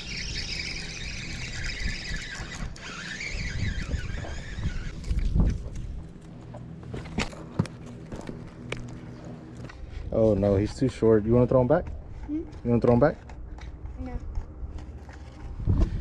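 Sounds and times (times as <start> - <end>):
fishing reel squealing: 0.0 - 5.3.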